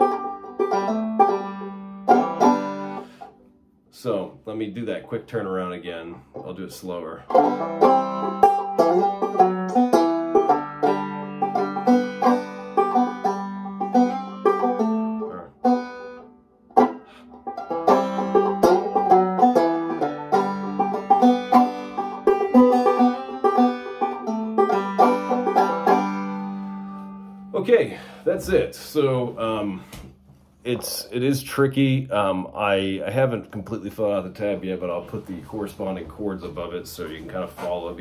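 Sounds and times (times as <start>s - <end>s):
banjo picked slowly: 0.0s - 3.4s, 4.0s - 29.9s.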